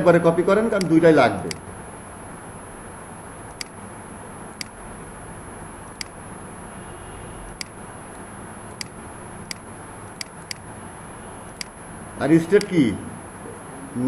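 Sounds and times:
computer mouse clicking: 0.8 - 1.7, 3.5 - 3.8, 4.6 - 4.8, 6.0 - 6.2, 7.6 - 7.8, 8.7 - 10.7, 11.5 - 11.8, 12.6 - 12.8.

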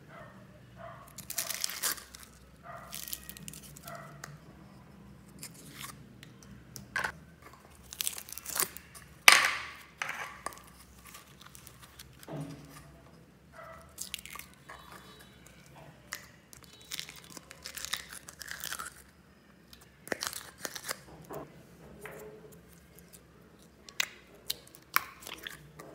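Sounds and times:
plastic tubs crinkling: 1.1 - 3.9, 7.0 - 12.9, 13.8 - 19.1, 20.0 - 21.0
slime squelching: 1.1 - 4.4, 7.4 - 13.0, 13.6 - 19.1, 22.2 - 25.9
bead slime crackling: 1.2 - 3.9, 7.8 - 9.4.

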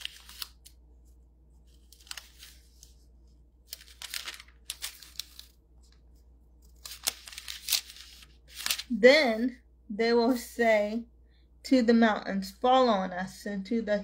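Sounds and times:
paper rustling and crinkling: 0.0 - 9.0.

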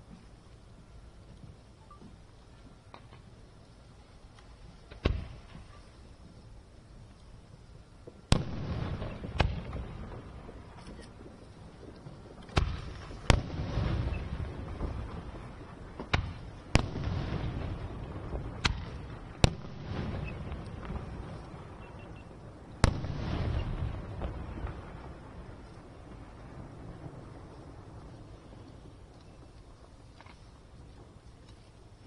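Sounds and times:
firework shells bursting with echo: 4.6 - 6.4, 8.0 - 31.6.

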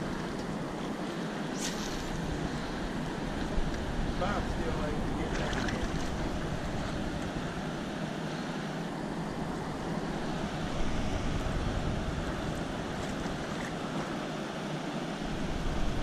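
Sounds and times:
river water rushing: 0.0 - 16.0
wind buffeting microphone: 2.0 - 8.1, 9.3 - 14.2.

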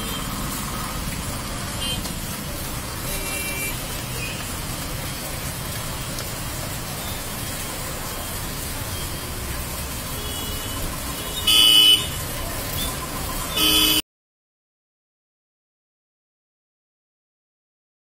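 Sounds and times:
heavy rain pouring on street: 0.0 - 14.0
vehicle horn honk: 10.2 - 12.2, 13.6 - 14.0.

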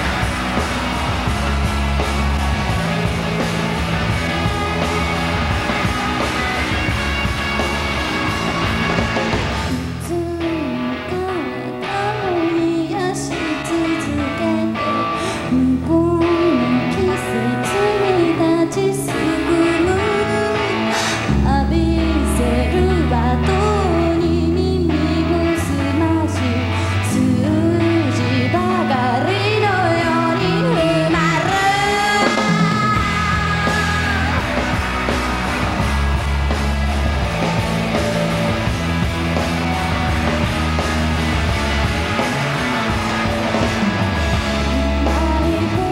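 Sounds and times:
drums: 0.0 - 45.9
electric guitar: 0.0 - 45.9
woman singing lead vocal: 9.7 - 34.6, 44.5 - 45.9.

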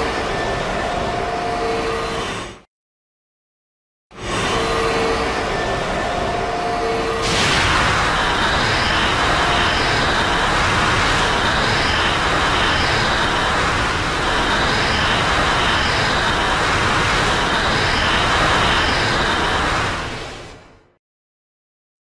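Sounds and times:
monster rushing rumble: 7.2 - 20.3
faint pulsing high tones: 8.0 - 20.2.

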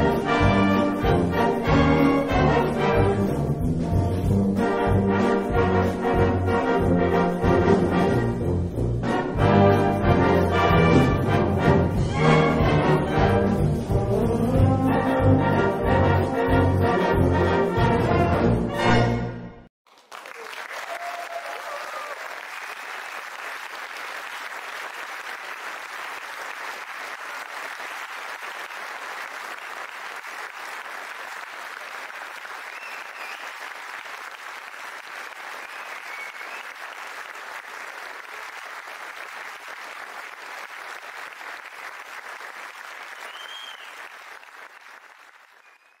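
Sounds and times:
audience applauding: 19.9 - 46.0.

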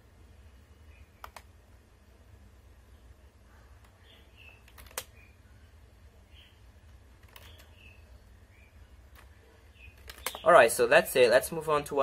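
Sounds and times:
low steady hum: 0.0 - 12.0
keyboard and mouse clicks: 1.2 - 1.5, 3.8 - 5.2, 6.9 - 7.8, 9.1 - 10.4.

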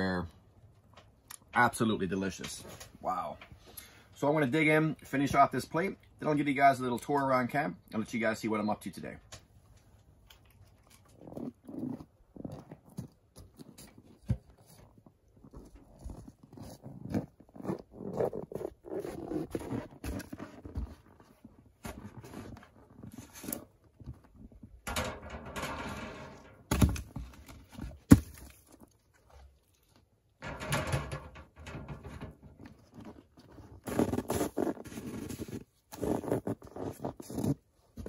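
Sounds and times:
firewood logs knocking: 26.6 - 28.8.

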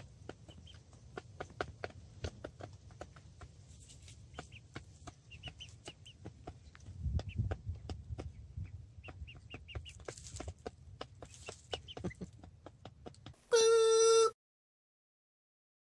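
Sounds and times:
chickens clucking: 0.0 - 13.7.

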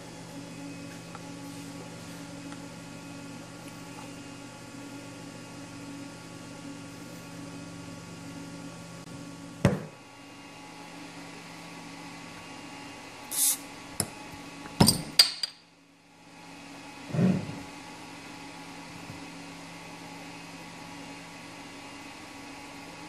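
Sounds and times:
bottle gas hiss: 13.3 - 13.6.

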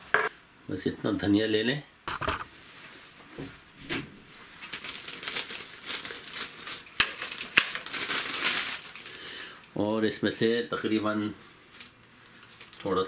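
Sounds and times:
plastic bag crinkling: 4.6 - 9.5.

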